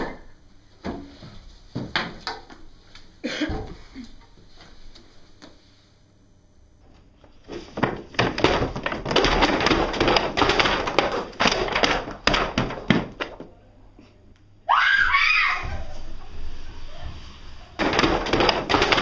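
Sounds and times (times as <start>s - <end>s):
clattering crashes and thuds: 7.6s - 13.4s, 17.8s - 19.0s
girl screaming: 14.7s - 16.0s.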